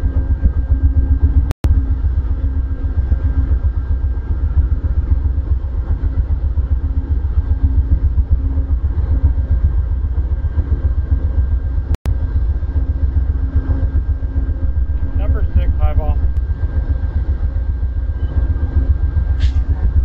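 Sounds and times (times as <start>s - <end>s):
throbbing hum: 0.0s - 20.0s
diesel locomotive idling: 14.1s - 18.0s.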